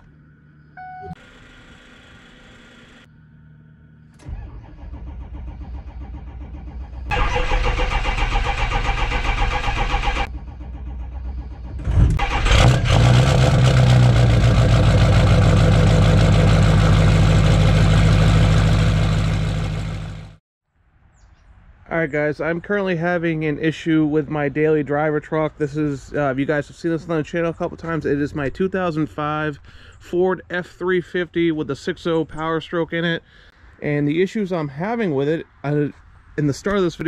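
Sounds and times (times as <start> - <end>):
diesel engine running: 0.0 - 20.4
diesel engine cranking on starter: 4.0 - 20.2.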